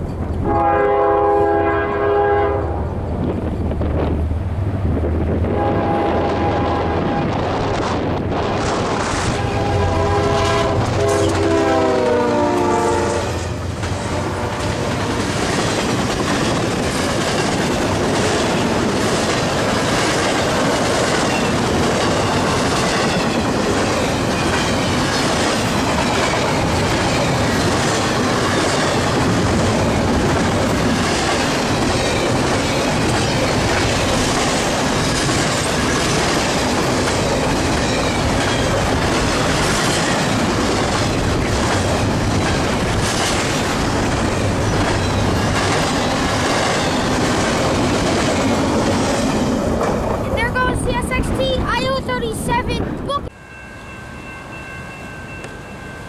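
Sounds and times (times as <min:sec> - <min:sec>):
freight train rumbling on rails: 0:00.0 - 0:56.0
locomotive horn: 0:00.4 - 0:02.8, 0:05.4 - 0:07.4, 0:09.3 - 0:14.7.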